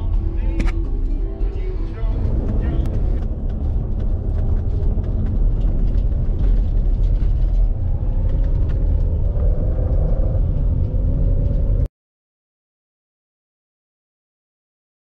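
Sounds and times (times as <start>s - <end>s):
vehicle engine and road rumble: 0.0s - 11.9s.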